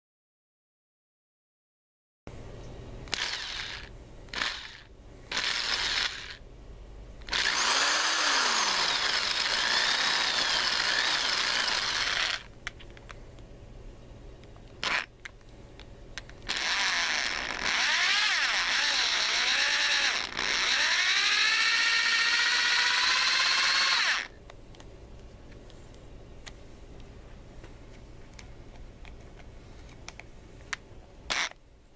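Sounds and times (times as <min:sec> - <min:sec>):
power drill motor whine: 0:03.1 - 0:06.4, 0:07.3 - 0:12.5, 0:16.5 - 0:24.3.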